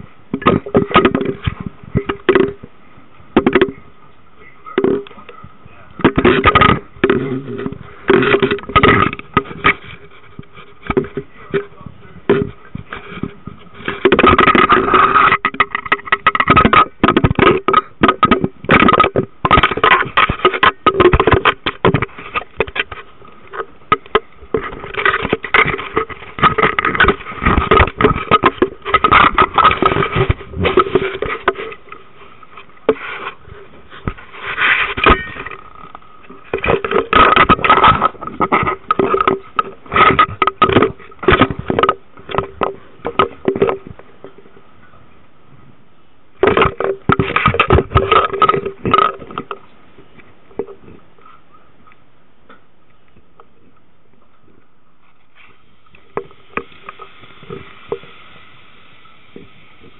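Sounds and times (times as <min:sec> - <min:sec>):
faint steady hum: 0:00.0 - 0:59.9
camera handling rubbing and knocking: 0:06.0 - 0:44.4, 0:46.4 - 0:49.7.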